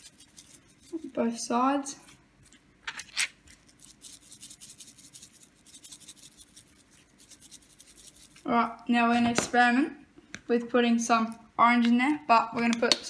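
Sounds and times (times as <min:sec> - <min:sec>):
spice shaker rattling: 0:00.0 - 0:01.1, 0:03.5 - 0:08.5.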